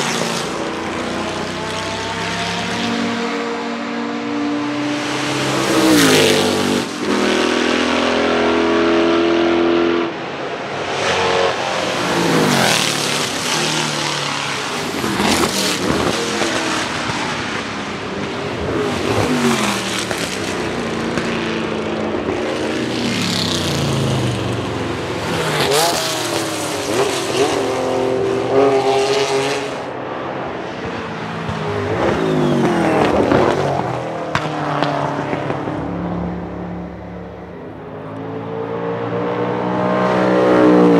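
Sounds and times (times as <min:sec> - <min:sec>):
racing car engine revving: 0:00.0 - 0:30.0.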